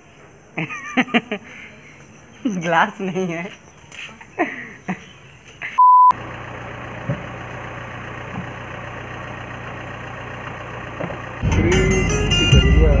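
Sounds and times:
test tone beep: 5.8s - 6.2s
car engine idling: 6.1s - 13.0s.

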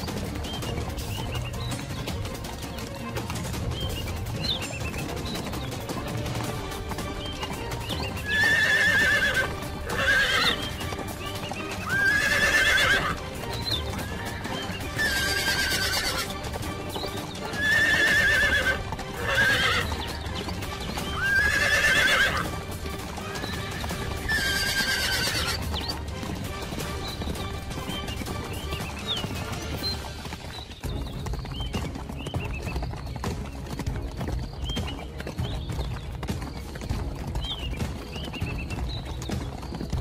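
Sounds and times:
background music: 0.0s - 40.0s
horse whinnying: 7.9s - 22.6s, 23.2s - 26.0s.

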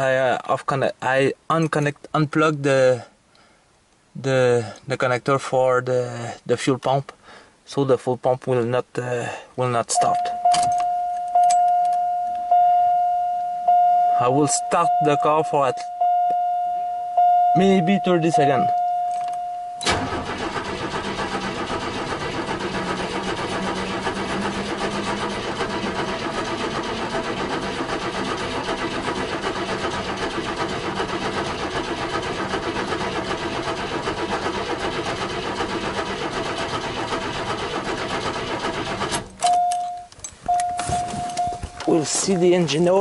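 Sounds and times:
engine cranking on starter: 19.2s - 39.9s, 40.5s - 42.0s.

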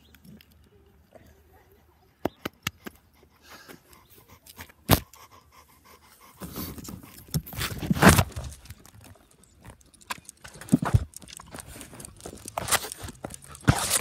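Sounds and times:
dog panting and snuffling: 1.6s - 14.0s
sharp clicks and taps: 8.5s - 14.0s.

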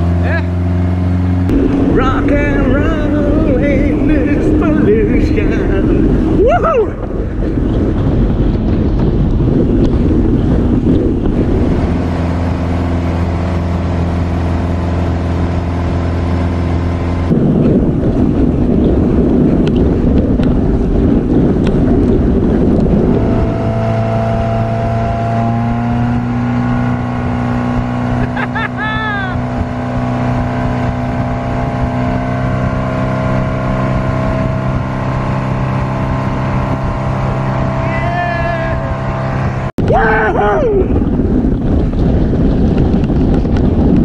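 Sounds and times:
rushing water: 0.0s - 9.5s
boat engine droning: 0.0s - 44.0s
wind noise: 0.8s - 44.0s.

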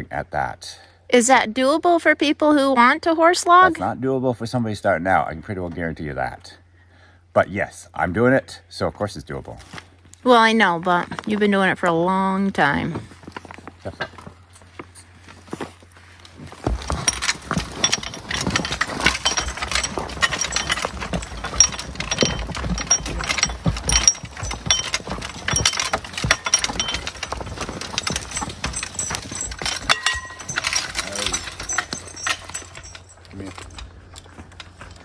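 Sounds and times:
horse hoof steps: 13.0s - 35.0s
harness and chains jingling: 16.7s - 34.3s.

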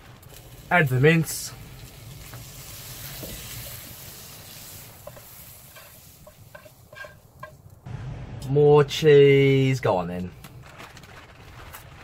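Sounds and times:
meat sizzling in a frying pan: 0.2s - 7.2s
metal turner scraping a pan: 1.8s - 7.6s.

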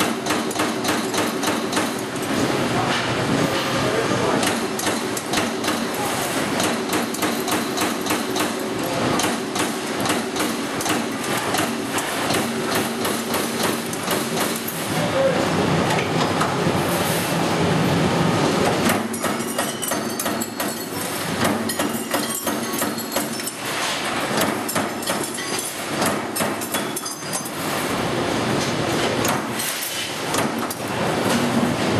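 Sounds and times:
punch press ram striking: 18.8s - 27.1s.

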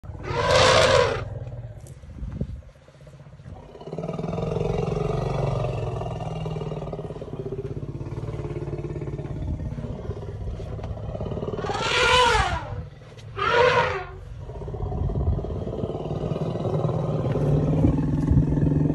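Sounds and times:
elephant low rumble: 0.0s - 18.9s
elephant calls: 11.6s - 14.2s.

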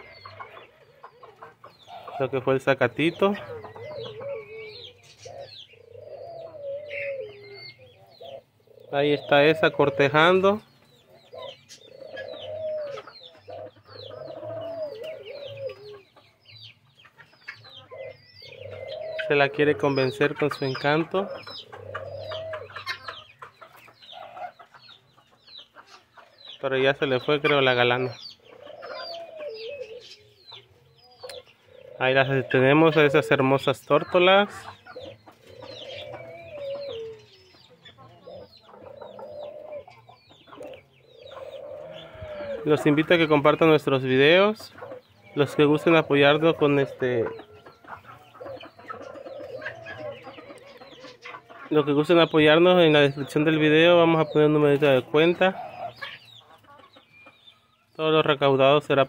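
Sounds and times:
birds chirping: 0.0s - 59.0s
doves cooing: 0.0s - 59.0s.

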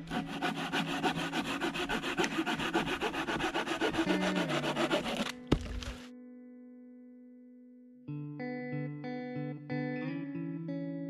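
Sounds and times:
hand saw cutting branch: 0.0s - 6.0s.

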